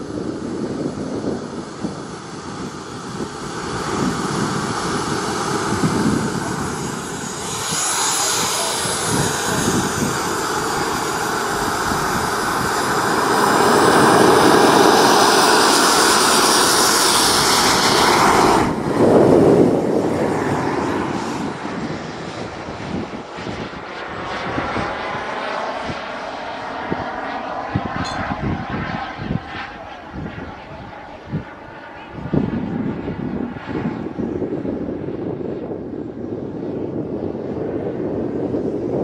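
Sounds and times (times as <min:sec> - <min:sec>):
rushing air: 0:00.0 - 0:30.5
jet engine high whine: 0:00.0 - 0:39.0.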